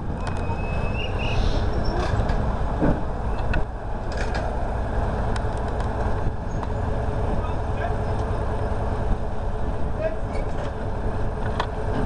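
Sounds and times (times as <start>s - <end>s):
diesel locomotive engine rumble: 0.0s - 12.0s
high squeal: 0.3s - 2.2s.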